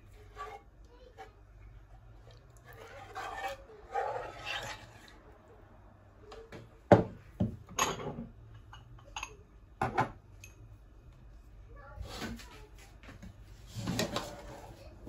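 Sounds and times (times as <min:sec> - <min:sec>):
ladle scraping in a metal pan: 0:00.0 - 0:05.2.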